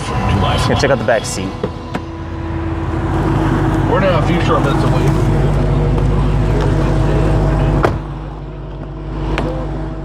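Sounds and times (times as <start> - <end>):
car engine idling: 0.0 - 10.0
car door shutting: 7.7 - 8.1.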